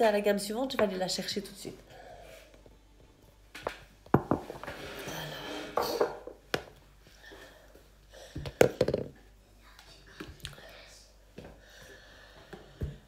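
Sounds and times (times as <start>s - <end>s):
objects knocking and tapping: 3.6s - 4.8s, 5.8s - 6.8s, 8.4s - 9.2s.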